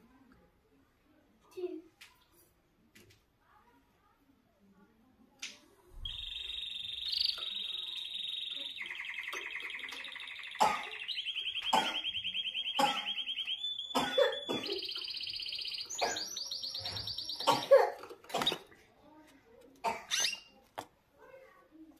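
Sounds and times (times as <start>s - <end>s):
canary singing trills: 6.0s - 17.8s, 20.1s - 20.6s.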